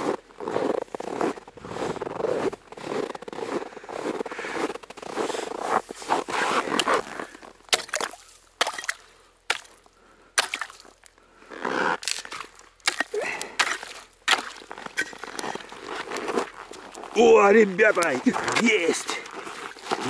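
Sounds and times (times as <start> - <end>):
water sloshing: 6.7 - 11.1, 12.0 - 20.0.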